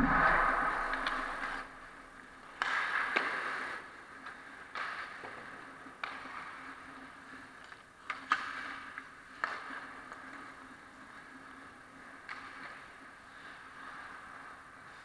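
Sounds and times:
steady low hum: 0.0 - 2.4
skates scraping on ice: 2.2 - 15.0
hockey sticks clacking on puck: 2.4 - 15.0.

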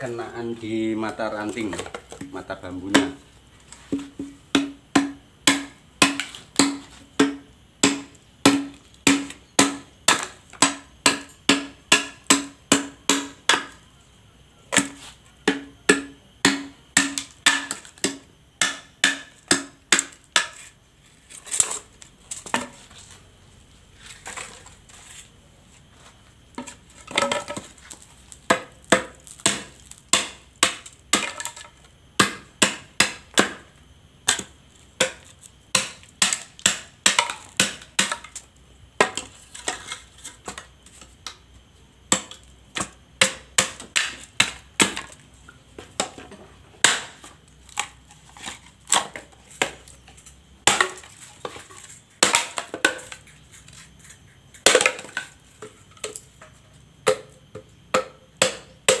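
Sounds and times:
blade chopping bamboo: 3.9 - 13.8, 14.7 - 20.7, 26.6 - 38.4, 42.1 - 45.2, 46.8 - 49.9, 57.9 - 59.0.

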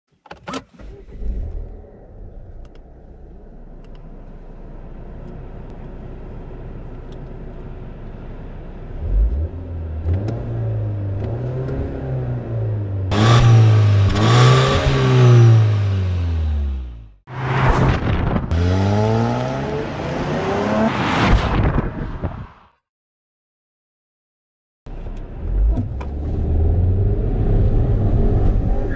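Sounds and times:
car engine starting and idling: 0.3 - 17.2
car engine revving: 8.9 - 21.2.

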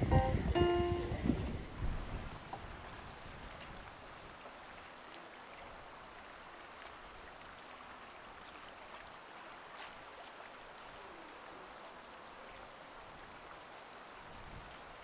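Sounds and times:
faint moving water: 0.0 - 15.0
faint ticks: 14.6 - 14.9.

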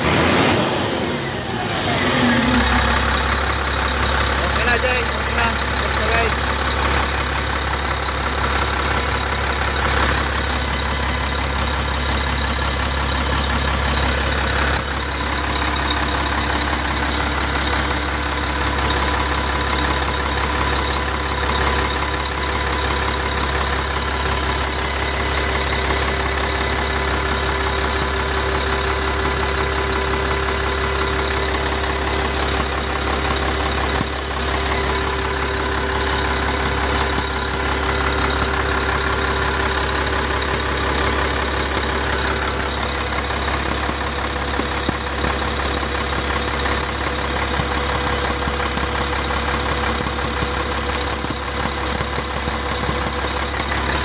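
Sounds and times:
diesel engine idling: 0.0 - 54.0
engine fan and drive belts turning: 0.0 - 54.0.

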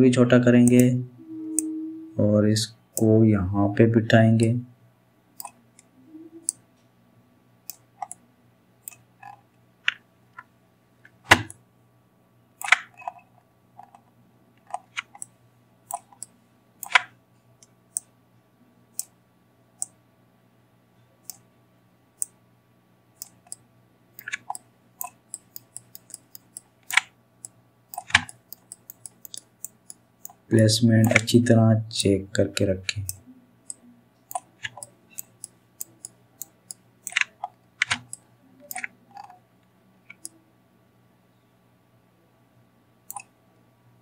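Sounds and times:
low steady hum: 0.0 - 44.0
computer mouse clicks: 5.4 - 6.6, 7.7 - 8.2, 8.8 - 10.0, 12.6 - 14.0, 14.6 - 15.3, 15.9 - 18.1, 19.8 - 20.0, 21.2 - 21.5, 23.2 - 23.6, 24.2 - 31.4, 33.1 - 39.4, 40.1 - 40.4, 43.1 - 43.3.

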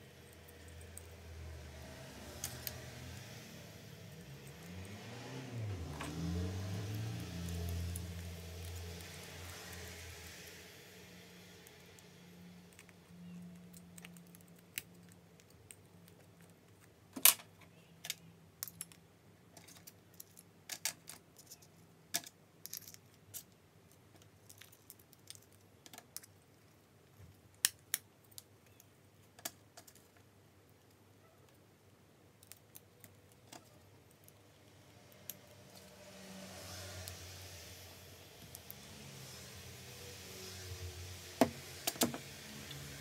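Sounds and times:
small metal parts clicking: 2.2 - 3.3, 11.5 - 30.2, 32.4 - 35.9.

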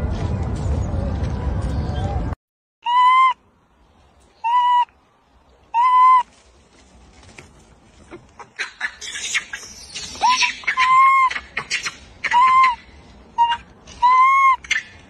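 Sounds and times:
baby monkey coo calls: 4.4 - 4.9, 5.7 - 6.2, 8.1 - 12.8, 13.4 - 15.0.

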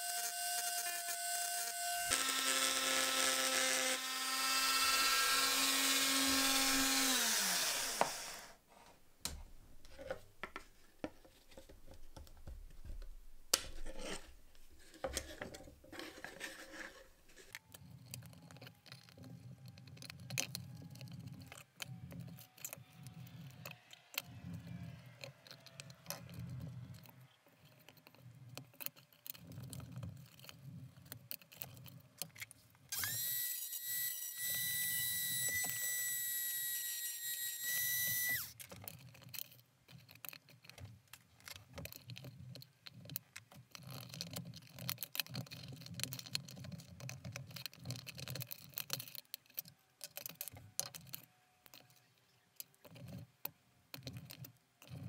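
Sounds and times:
rotary tool whining: 0.0 - 8.6, 32.9 - 38.8
chisel scraping: 0.0 - 8.9, 13.5 - 53.3.

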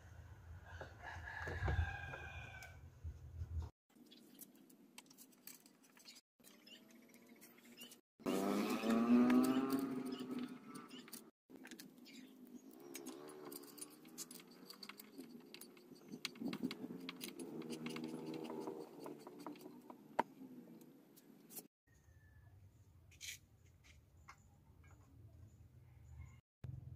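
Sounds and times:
screwdriver clicks and scrapes: 9.2 - 20.0.

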